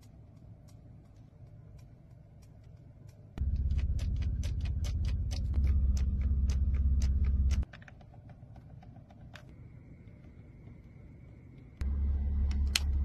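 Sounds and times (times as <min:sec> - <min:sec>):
steering-column stalk clicking: 0:00.0 - 0:10.9
low cabin rumble: 0:03.4 - 0:07.6.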